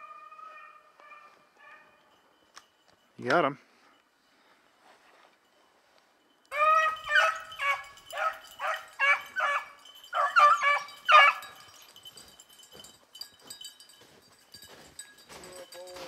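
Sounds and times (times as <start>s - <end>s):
dog yelping barks: 0.0s - 2.0s, 6.5s - 11.6s.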